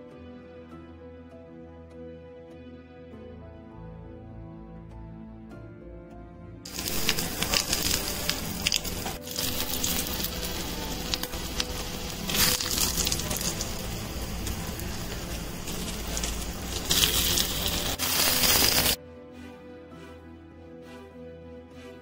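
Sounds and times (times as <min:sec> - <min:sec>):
seeds sizzling and popping in oil: 0:06.7 - 0:19.0.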